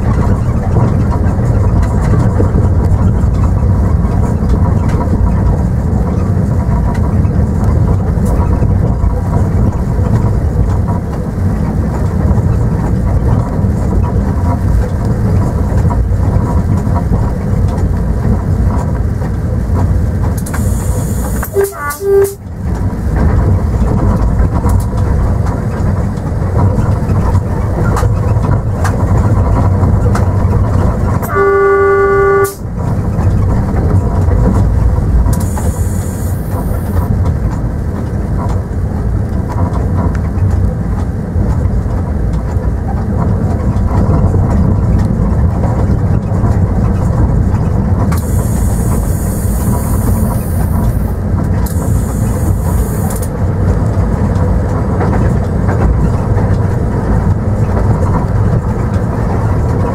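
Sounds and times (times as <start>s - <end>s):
train rumbling: 0.0s - 59.9s
train horn: 20.6s - 22.5s, 31.2s - 32.7s.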